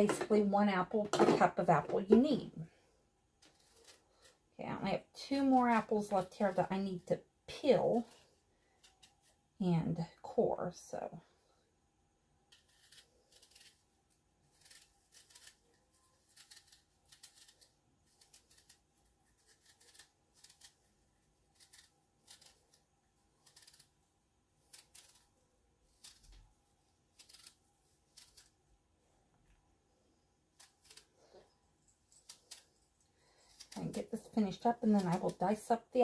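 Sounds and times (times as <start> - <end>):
knife scraping apple peel: 3.5 - 4.4, 12.5 - 26.4, 27.0 - 28.6, 30.5 - 31.5, 32.1 - 35.7.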